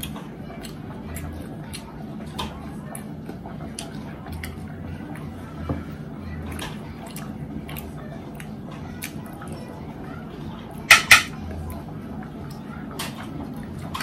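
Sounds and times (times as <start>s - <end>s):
wet chewing noises: 0.0s - 9.7s.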